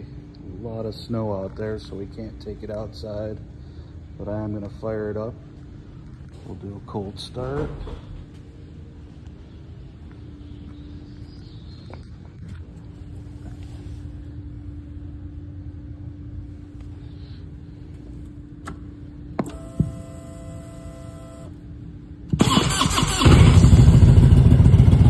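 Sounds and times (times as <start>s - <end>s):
steady ignition tone: 13.0s - 25.0s
ignition clicks: 18.6s - 21.6s
starter motor cranking: 22.3s - 24.0s
motorcycle engine running loudly: 22.4s - 25.0s.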